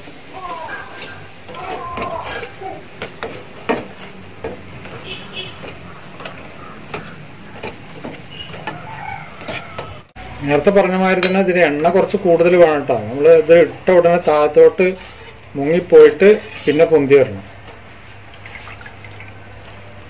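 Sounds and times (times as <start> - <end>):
batter sizzling in hot oil: 0.0 - 20.0
skimmer scraping metal pan: 0.5 - 10.1, 14.0 - 18.8.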